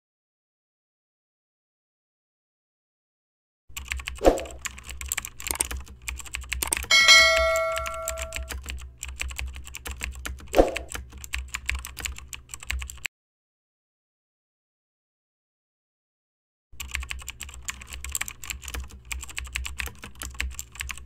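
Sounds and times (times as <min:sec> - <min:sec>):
keyboard typing clicks: 0:03.8 - 0:13.1, 0:16.8 - 0:21.0
bell ding: 0:06.9 - 0:08.6.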